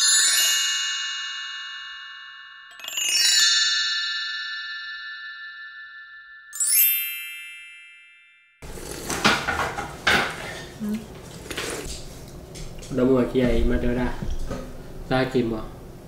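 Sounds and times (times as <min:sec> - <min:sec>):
bell-like chime flourishes: 0:00.8 - 0:08.6.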